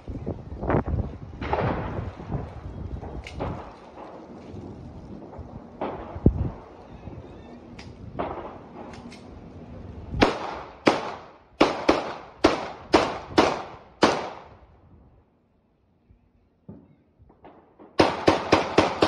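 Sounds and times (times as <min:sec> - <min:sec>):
gunshots echoing: 0:05.2 - 0:06.8, 0:08.1 - 0:08.9, 0:10.2 - 0:14.6, 0:16.7 - 0:19.0.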